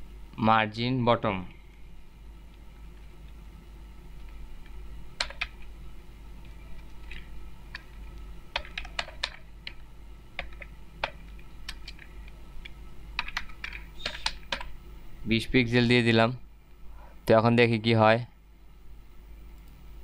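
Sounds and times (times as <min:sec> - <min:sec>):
typing on computer keyboard: 0:05.2 - 0:05.6, 0:08.5 - 0:09.4, 0:10.4 - 0:12.1, 0:13.2 - 0:14.7.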